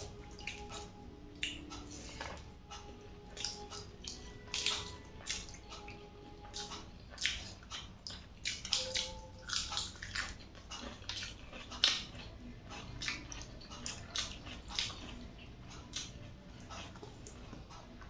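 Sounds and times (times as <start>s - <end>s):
wet chewing and lip smacks: 0.0s - 2.0s, 2.7s - 18.0s.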